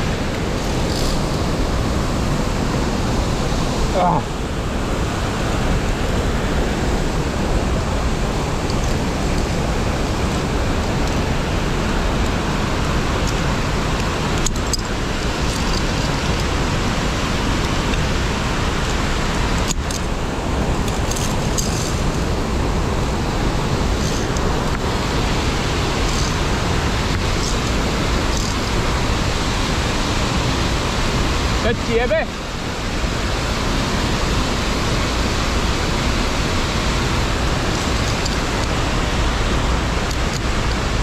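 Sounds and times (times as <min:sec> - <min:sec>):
rushing stream water: 0:00.0 - 0:41.0.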